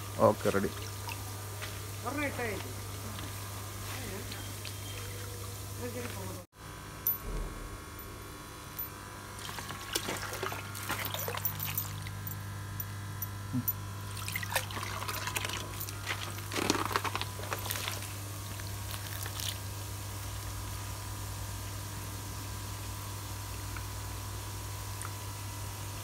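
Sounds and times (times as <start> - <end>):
steady low hum: 0.0 - 26.0
water splashing and trickling: 0.4 - 1.3, 4.0 - 6.4, 9.4 - 12.3, 14.1 - 18.1.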